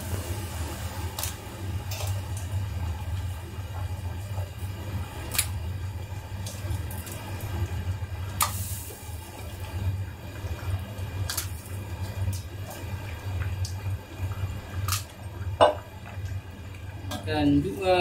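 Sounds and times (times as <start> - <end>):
crab shells clicking in a wok: 11.2 - 11.6.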